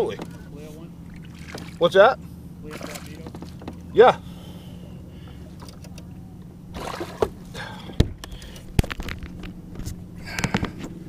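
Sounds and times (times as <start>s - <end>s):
small water splashes: 1.0s - 2.0s, 2.6s - 4.0s, 6.7s - 7.9s.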